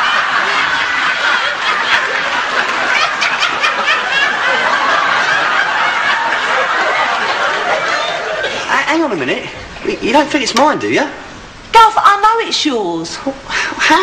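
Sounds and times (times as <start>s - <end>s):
women laughing: 0.0s - 8.7s.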